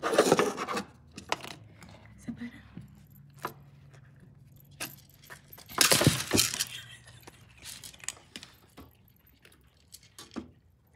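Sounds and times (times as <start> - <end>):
small clinks: 2.7 - 10.9.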